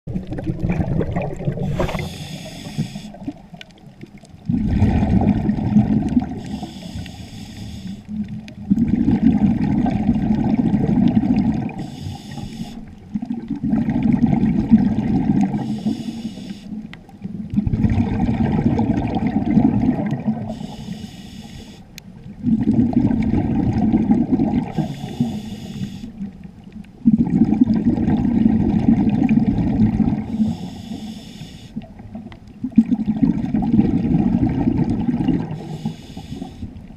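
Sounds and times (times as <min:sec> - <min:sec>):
exhaled bubbles rumbling: 0:00.1 - 0:07.2, 0:08.0 - 0:20.9, 0:22.0 - 0:30.8, 0:31.8 - 0:36.9
regulator inhale hiss: 0:01.6 - 0:03.3, 0:06.3 - 0:08.2, 0:11.7 - 0:12.9, 0:15.6 - 0:16.9, 0:20.5 - 0:21.9, 0:24.7 - 0:26.2, 0:30.3 - 0:31.8, 0:35.5 - 0:36.8.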